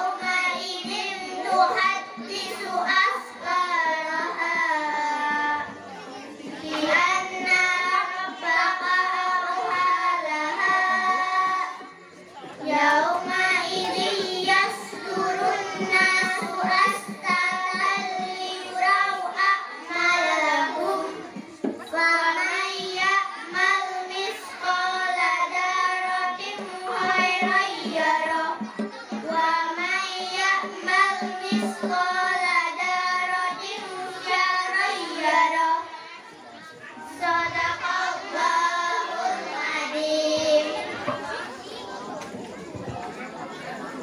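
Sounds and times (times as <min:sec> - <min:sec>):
girls chanting in unison: 0:12.6 - 0:36.2, 0:37.0 - 0:41.5.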